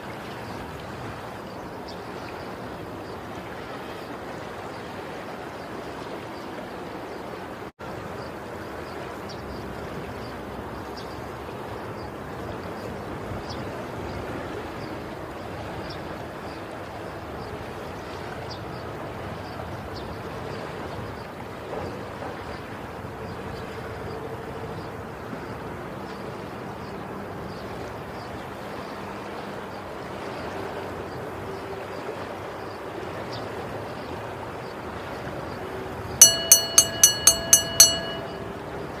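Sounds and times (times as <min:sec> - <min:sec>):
rushing pool water: 0:00.0 - 0:39.0
churning splashing water: 0:27.6 - 0:39.0
small bell ringing: 0:36.2 - 0:38.8.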